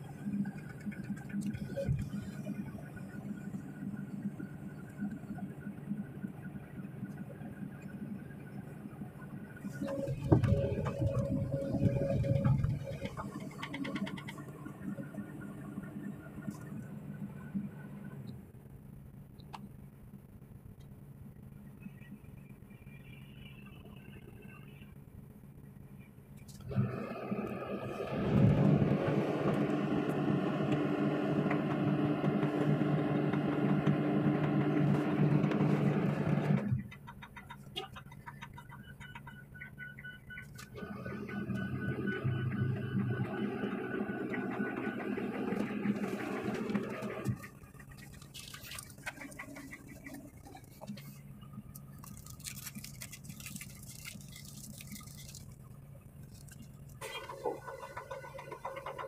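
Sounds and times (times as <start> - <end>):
diesel engine hum: 0.0 - 59.0
heavy machine engine idling: 26.7 - 51.6.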